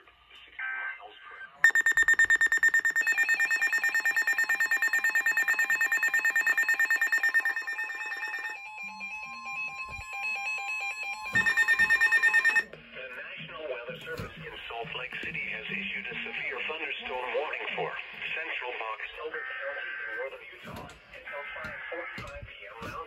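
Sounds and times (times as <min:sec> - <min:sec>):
warbling two-pitch alarm tone: 0:01.6 - 0:12.6
rapid electronic beeping: 0:01.6 - 0:12.7.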